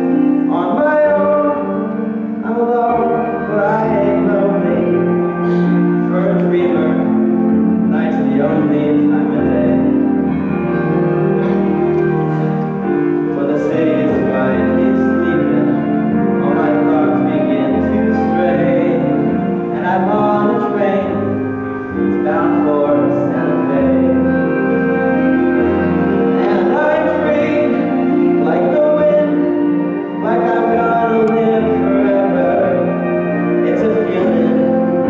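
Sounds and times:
young male voice singing: 0.0 - 10.1, 13.3 - 24.6, 26.3 - 35.0
piano held chords: 0.0 - 35.0.

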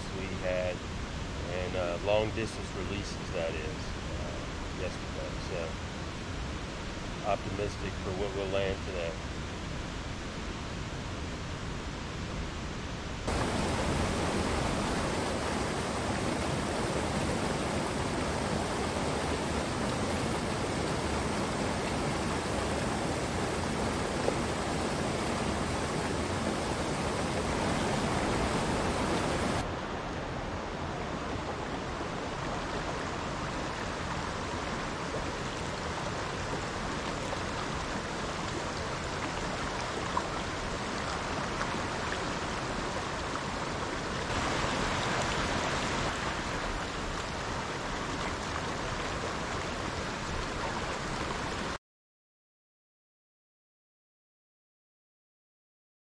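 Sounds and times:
creek rushing over boulders: 13.3 - 51.8.

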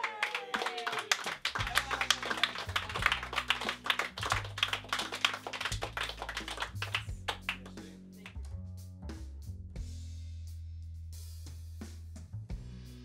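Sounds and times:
group clapping: 0.0 - 8.4
background music with bass: 1.2 - 13.0.

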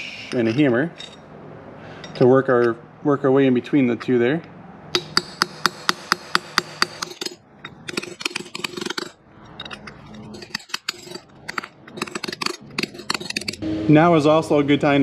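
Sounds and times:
hammer tapping metal punch: 4.9 - 9.8.

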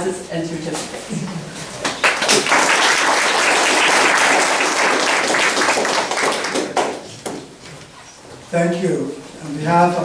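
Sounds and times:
audience applauding: 1.9 - 7.1.

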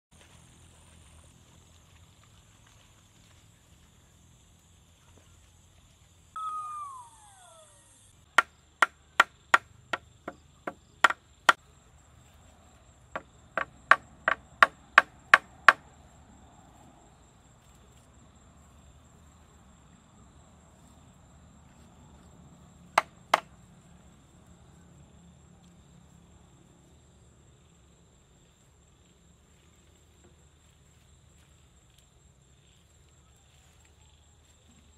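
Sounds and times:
short falling cry: 6.4 - 8.1.

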